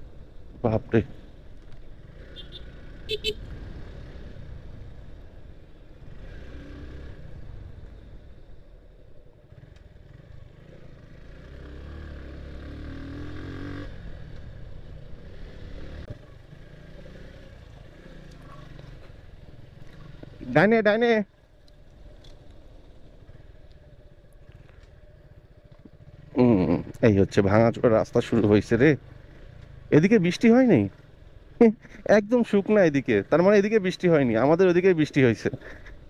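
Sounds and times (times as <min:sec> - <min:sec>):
motorcycle engine running: 0:21.4 - 0:32.0.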